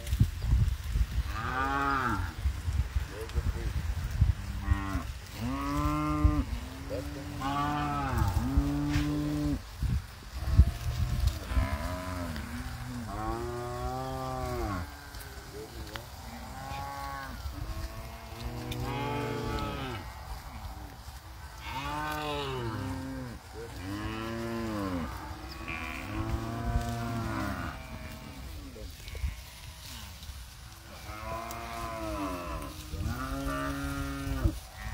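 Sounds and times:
cattle mooing: 0:16.4 - 0:20.1, 0:21.6 - 0:30.0.

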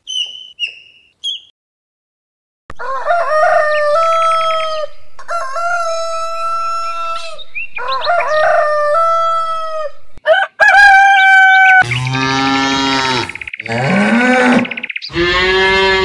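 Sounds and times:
rooster crowing: 0:02.7 - 0:11.9.

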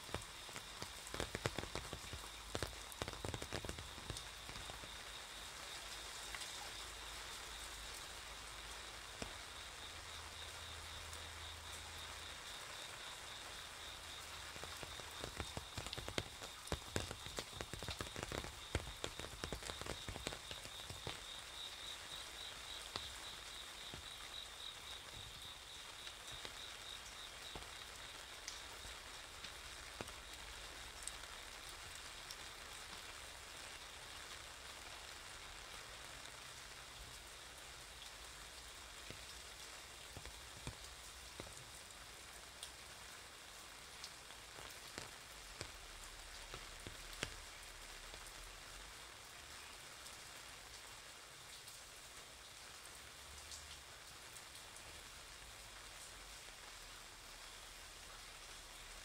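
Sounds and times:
drops tapping on umbrella: 0:00.0 - 0:04.8, 0:14.6 - 0:21.3
rain on wet paving: 0:00.0 - 0:59.0.

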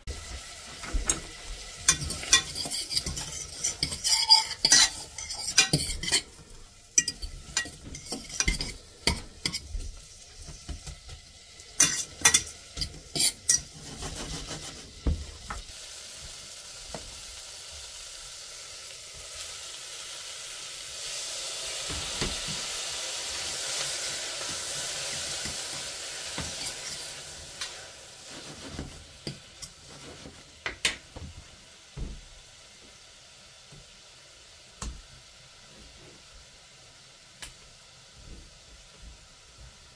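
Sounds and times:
food sizzling in a pan: 0:00.0 - 0:39.9
utensil clinking against pan: 0:01.9 - 0:06.4, 0:07.0 - 0:09.7, 0:11.8 - 0:13.7.

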